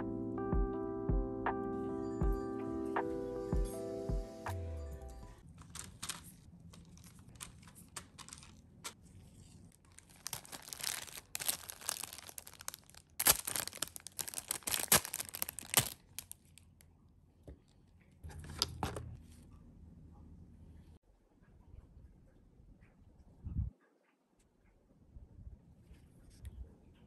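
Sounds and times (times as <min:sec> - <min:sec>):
plastic packaging crinkling: 0:05.4 - 0:16.7.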